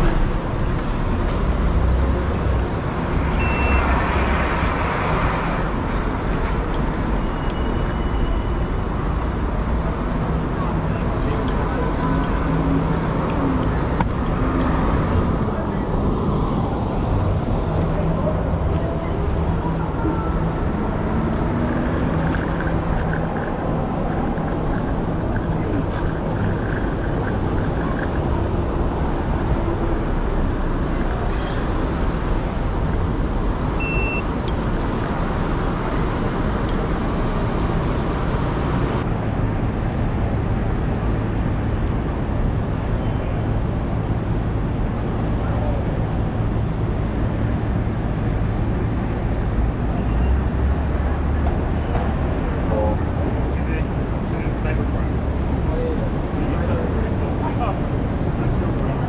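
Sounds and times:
traffic rumble: 0.0 - 59.0
truck engine hum: 8.8 - 54.2.

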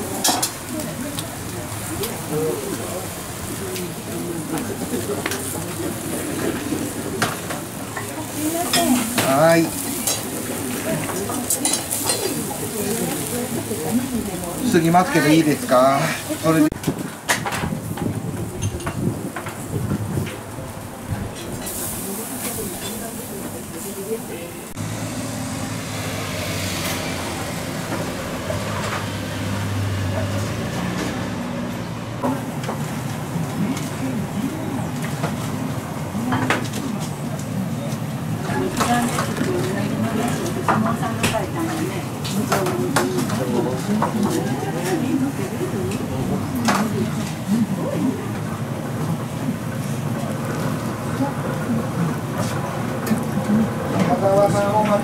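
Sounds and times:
fish sizzling on a grill: 0.0 - 16.7, 21.5 - 31.7.

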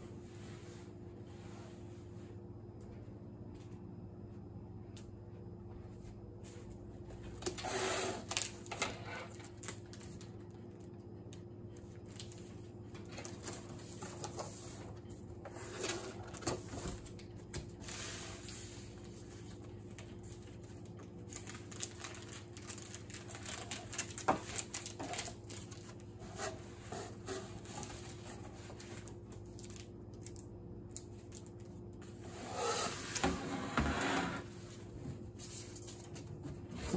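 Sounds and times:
faint steady hum: 0.0 - 36.9
cardboard packaging rustling: 15.8 - 30.3
plastic sleeve crinkling: 19.4 - 26.2, 27.6 - 31.8.

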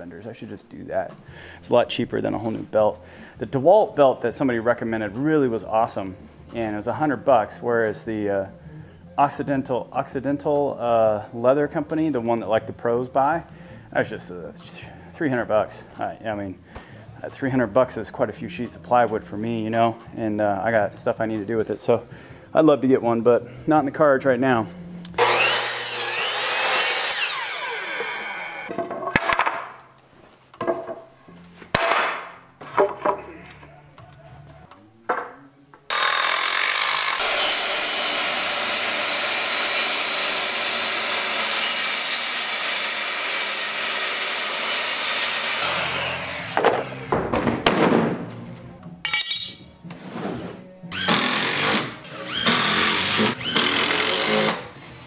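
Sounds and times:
circular saw cutting plywood: 25.1 - 28.7, 35.9 - 47.2, 51.0 - 54.8
miter saw cutting board: 25.1 - 28.7, 35.9 - 47.3, 51.0 - 54.6
cordless drill driving screws: 50.9 - 54.6.

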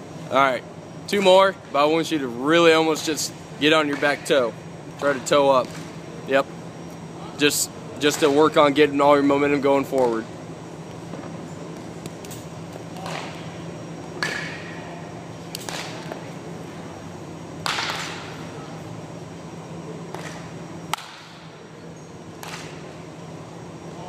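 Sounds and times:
steady low hum: 0.0 - 24.0
wooden bat striking balls: 14.2 - 14.8, 17.6 - 18.4, 20.1 - 21.5.

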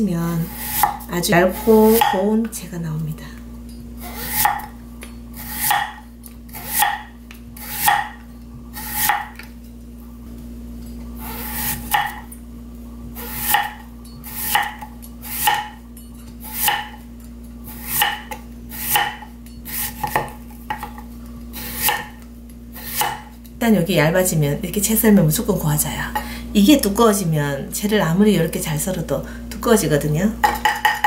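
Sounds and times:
knife slicing radish: 0.4 - 2.2, 4.0 - 4.7, 5.4 - 7.0, 7.6 - 8.1, 8.8 - 9.4, 11.2 - 12.2, 13.2 - 15.7, 16.4 - 17.0, 17.7 - 20.3, 21.5 - 22.2, 22.8 - 23.3.

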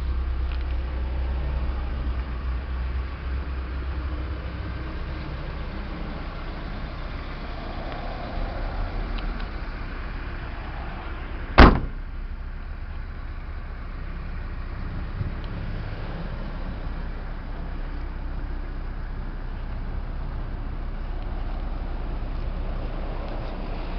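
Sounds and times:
steady low rumble: 0.0 - 23.9
truck door slamming: 11.6 - 12.0.

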